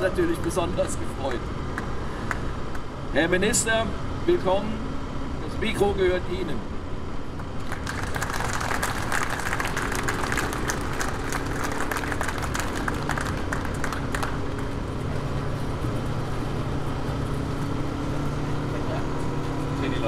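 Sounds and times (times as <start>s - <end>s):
crowd applauding and cheering: 7.6s - 15.1s.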